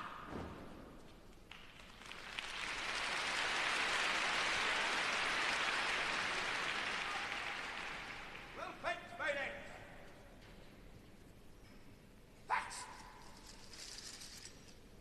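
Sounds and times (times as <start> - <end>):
crowd applauding: 1.5 - 8.6.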